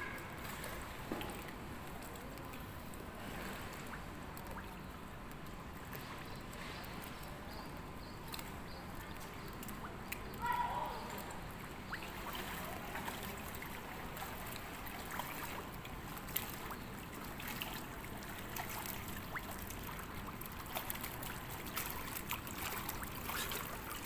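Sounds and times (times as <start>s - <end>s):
swimmer splashing in pool: 10.4s - 24.0s.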